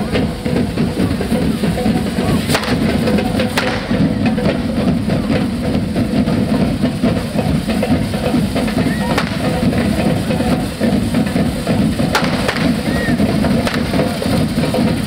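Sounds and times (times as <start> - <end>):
drums beating a dense rhythm: 0.0 - 15.0
sharp bangs: 2.2 - 5.7, 9.1 - 10.5, 12.0 - 14.4.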